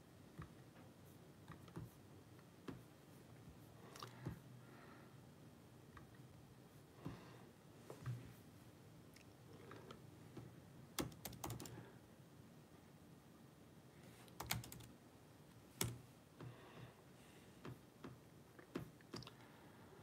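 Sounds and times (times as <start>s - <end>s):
typing on keyboard: 11.0s - 11.8s, 14.3s - 14.9s.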